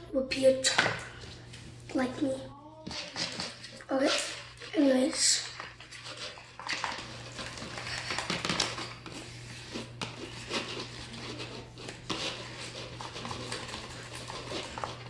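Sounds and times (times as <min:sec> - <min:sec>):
spoon stirring sticky slime: 0:02.0 - 0:15.0.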